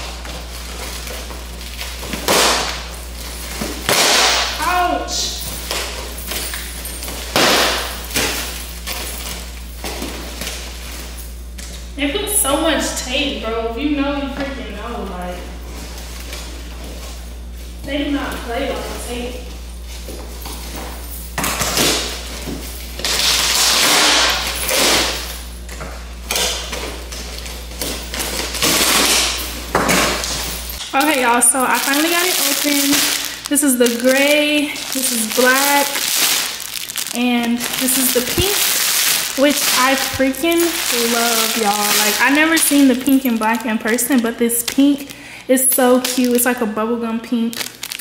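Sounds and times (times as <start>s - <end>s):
packing tape and cardboard ripping: 0.0s - 4.8s, 5.5s - 11.1s, 21.4s - 25.5s, 26.3s - 45.2s, 45.8s - 46.6s, 47.4s - 48.0s.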